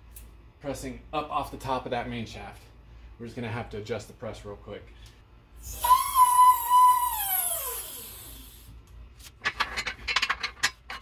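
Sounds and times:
metal clanks: 0:09.4 - 0:11.0.

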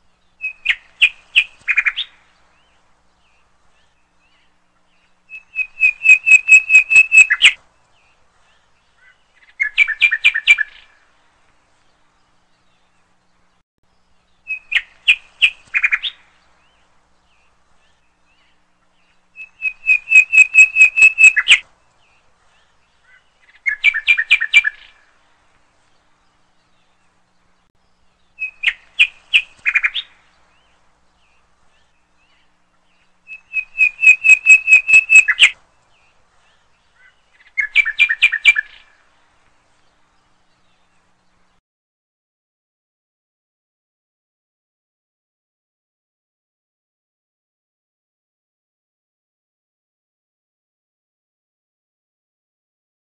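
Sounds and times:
bird chirping in trills: 0:00.0 - 0:11.0, 0:11.8 - 0:41.6.

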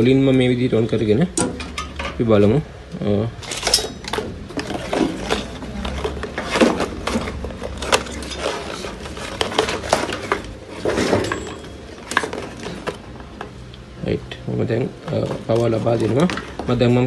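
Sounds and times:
circuit boards clicking and clattering: 0:03.4 - 0:13.6.

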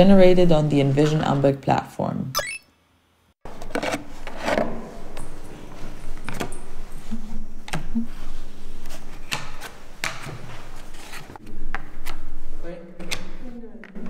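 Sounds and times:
cards tapping and sliding: 0:08.8 - 0:12.2.

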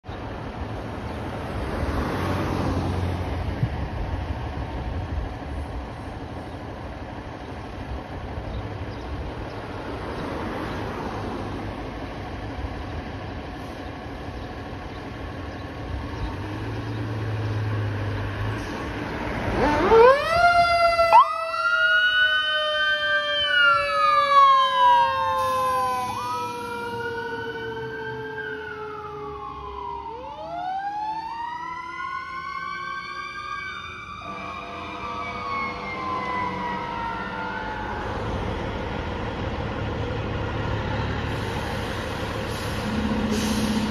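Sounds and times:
fire engines rumbling: 0:00.0 - 0:43.9
wailing siren tone: 0:19.5 - 0:38.8
fire engine siren winding: 0:19.6 - 0:38.2.

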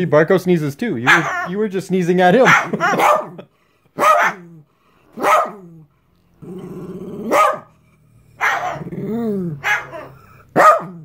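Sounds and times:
dog barking: 0:01.0 - 0:01.5, 0:02.4 - 0:03.4, 0:04.0 - 0:04.5, 0:05.2 - 0:05.7, 0:07.3 - 0:07.7, 0:08.4 - 0:08.9, 0:09.6 - 0:11.0
low growl: 0:05.6 - 0:11.0.

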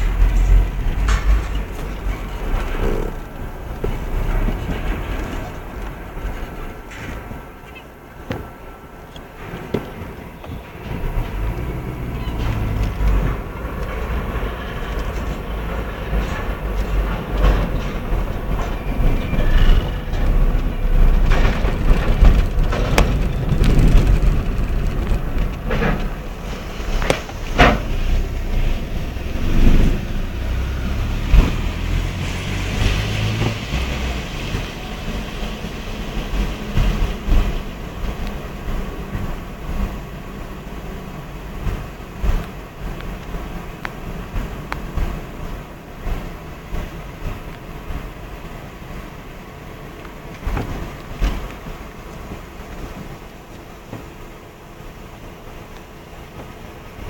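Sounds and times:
sharp knocks and clanks: 0:00.0 - 0:34.8
car rumbling over steel ramp: 0:00.0 - 0:57.0.

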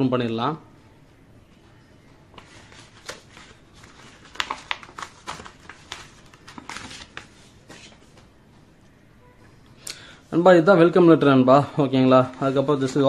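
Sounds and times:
paper crackling and rustling: 0:02.4 - 0:08.2
envelope being torn open: 0:03.0 - 0:07.2.

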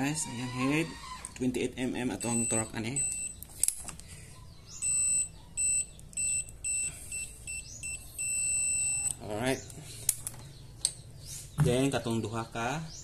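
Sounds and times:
short electronic beeps: 0:02.1 - 0:03.4, 0:04.7 - 0:09.2
long steady beep: 0:02.2 - 0:03.4, 0:04.8 - 0:09.2.

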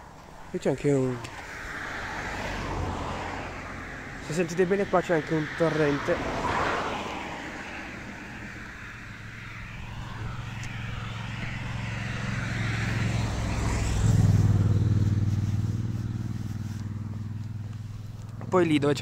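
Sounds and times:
vehicle engine hum: 0:00.0 - 0:19.0
steady rushing hiss: 0:07.5 - 0:18.4.

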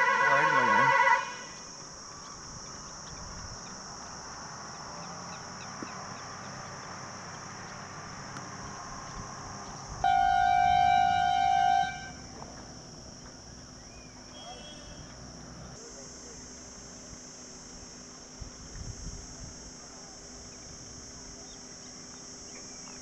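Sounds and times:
loud steady horn-like tone: 0:00.0 - 0:01.7, 0:09.9 - 0:12.6, 0:14.2 - 0:15.2
constant high hiss: 0:00.0 - 0:23.0
faint chirps: 0:13.2 - 0:18.1.

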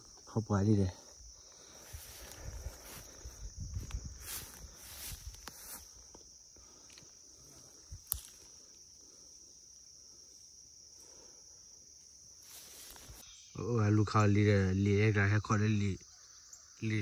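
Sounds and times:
insects droning: 0:00.0 - 0:17.0
footsteps through tall weeds: 0:01.5 - 0:08.5, 0:12.4 - 0:13.2.

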